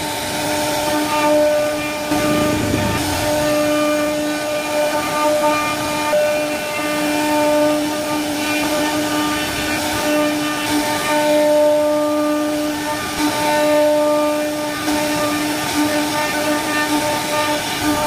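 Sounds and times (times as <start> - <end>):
bit cutting wood: 0.0 - 18.0
router spindle whining: 0.0 - 18.0.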